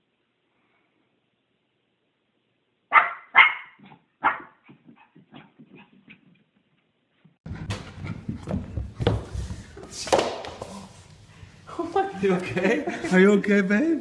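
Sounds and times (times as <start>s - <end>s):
puppy yipping barks: 2.9s - 6.0s
puppy sliding down carpeted stairs: 4.8s - 11.0s.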